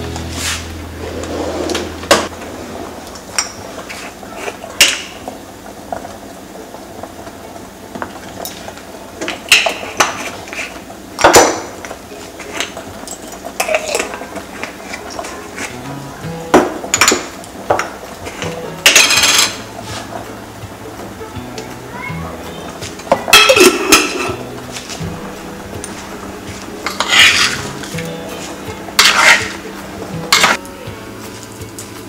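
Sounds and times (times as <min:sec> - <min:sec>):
glass jars clinking: 0:16.5 - 0:19.6, 0:23.0 - 0:30.6.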